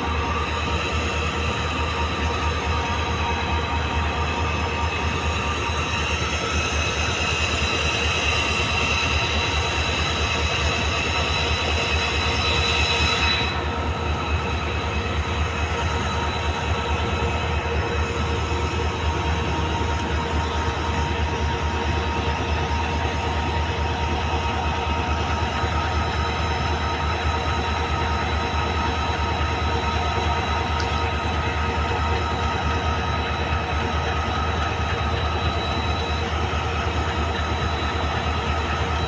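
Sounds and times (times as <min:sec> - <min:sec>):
train rumbling on track: 0:00.0 - 0:39.0
train wheel squeal: 0:00.0 - 0:39.0.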